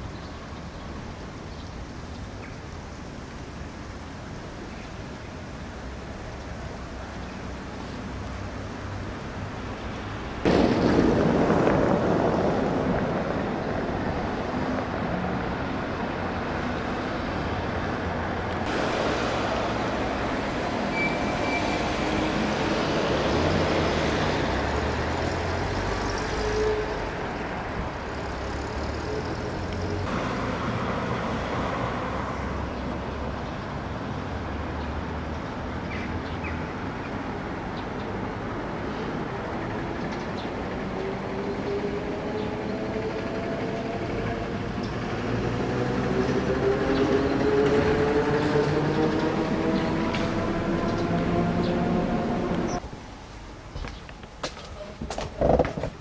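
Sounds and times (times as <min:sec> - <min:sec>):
steady rumbling noise: 0:02.8 - 0:21.2.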